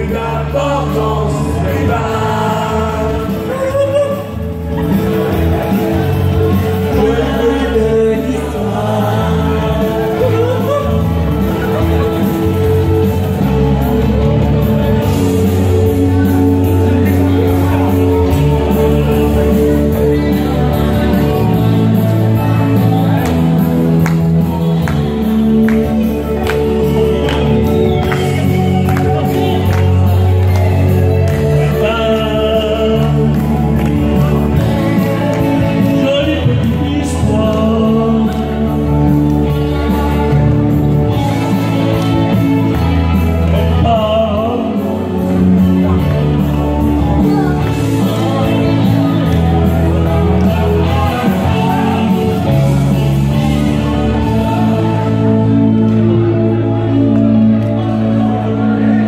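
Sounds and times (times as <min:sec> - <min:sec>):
group singing into microphones: 0:00.0 - 0:13.1, 0:47.0 - 0:59.0
recorded backing music: 0:00.0 - 0:59.0
steady bass line: 0:00.0 - 0:59.0.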